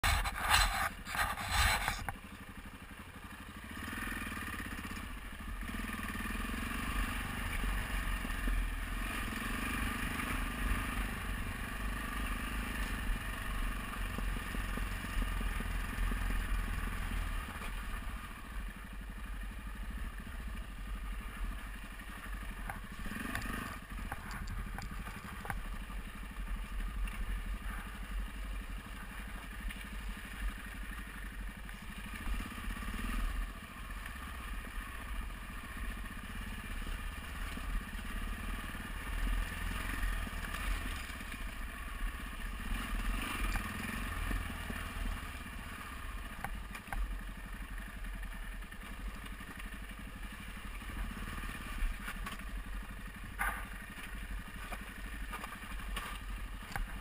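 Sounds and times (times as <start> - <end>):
rustling clatter: 0.0 - 2.1
motorcycle engine running: 0.0 - 57.0
tyres crunching over loose stones: 53.2 - 57.0.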